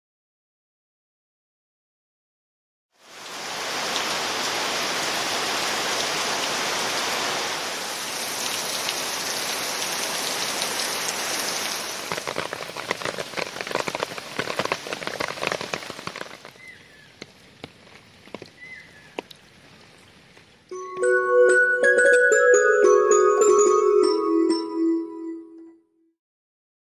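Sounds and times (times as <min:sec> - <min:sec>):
heavy rain falling: 0:03.0 - 0:20.6
water drips and splashes: 0:03.0 - 0:20.7.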